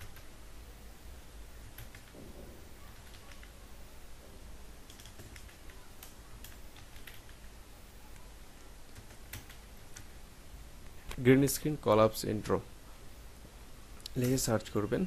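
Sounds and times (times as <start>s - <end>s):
faint keyboard keystrokes: 2.8s - 3.6s, 4.8s - 7.5s.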